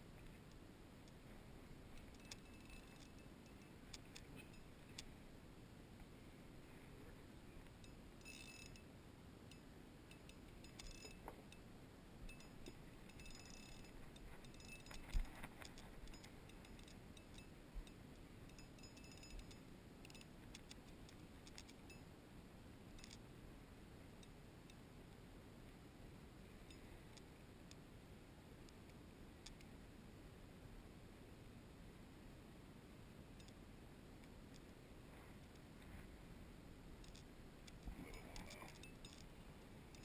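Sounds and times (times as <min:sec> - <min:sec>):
faint ticks and clicks: 0:00.0 - 0:29.9, 0:32.3 - 0:40.0.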